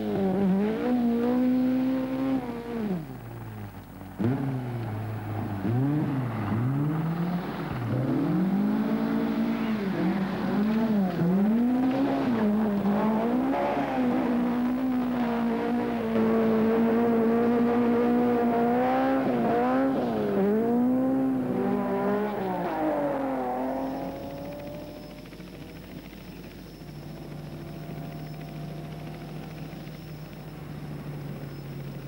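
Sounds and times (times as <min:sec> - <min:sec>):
rally car engine revving: 0:00.0 - 0:25.3.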